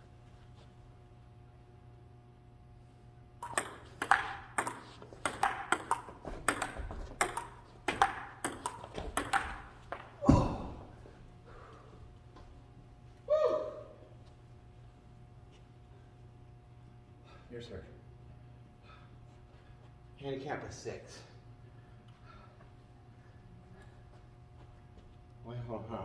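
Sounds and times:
table tennis ball clicking: 3.4s - 10.1s.

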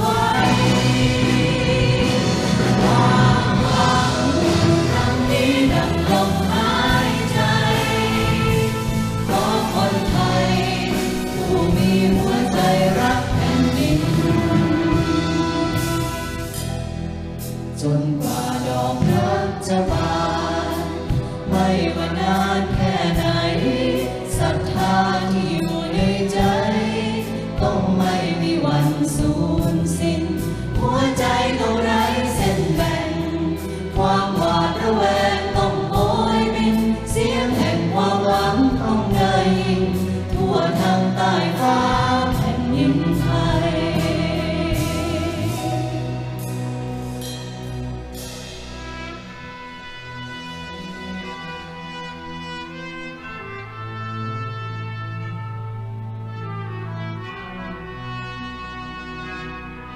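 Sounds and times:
choir singing: 0.0s - 16.6s, 17.7s - 47.1s
symphony orchestra: 0.0s - 59.9s.

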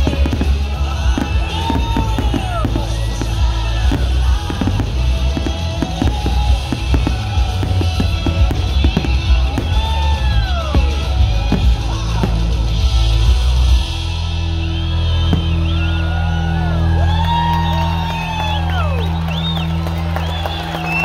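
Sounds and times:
firework bursts crackling: 0.0s - 14.2s
crowd whooping and cheering: 0.0s - 21.0s
fireworks show music: 0.0s - 21.0s.

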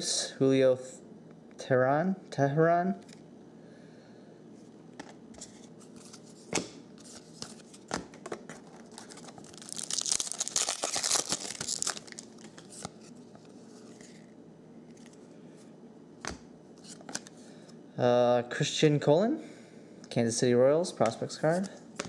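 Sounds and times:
foil wrapper crinkling: 8.6s - 13.0s.

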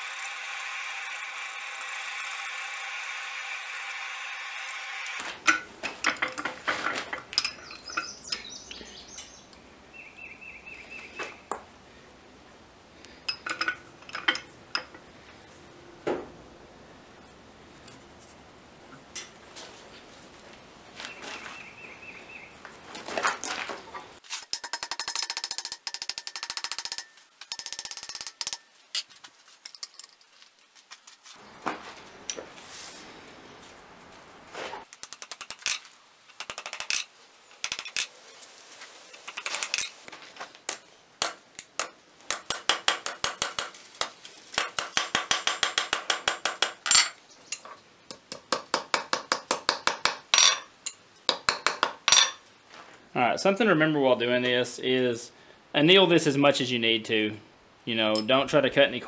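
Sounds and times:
hammer tapping metal on anvil: 41.2s - 52.4s.

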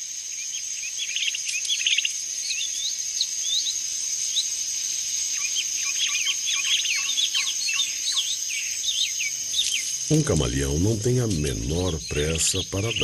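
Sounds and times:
high-pitched insect drone: 0.0s - 13.0s
birds chirping: 0.4s - 4.6s, 5.3s - 13.0s.

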